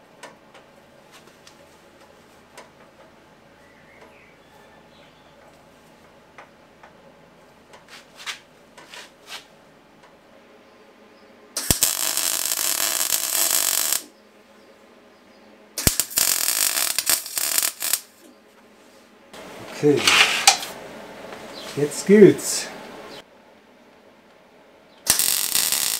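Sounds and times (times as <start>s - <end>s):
electric arc welding: 11.6s - 14.1s, 15.8s - 18.2s, 25.1s - 25.9s.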